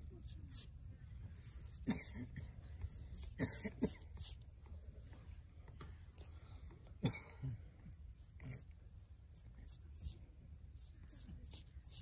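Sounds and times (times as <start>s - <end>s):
razor scraping beard stubble: 0.0s - 0.8s, 1.4s - 2.1s, 2.8s - 4.4s, 7.8s - 8.7s, 9.3s - 10.2s, 10.8s - 12.0s.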